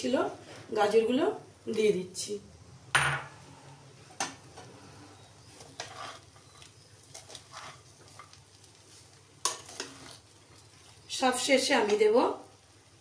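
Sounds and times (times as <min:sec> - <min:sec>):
faint sizzling: 0:00.0 - 0:13.0
spatula scraping rice in pan: 0:04.7 - 0:10.8.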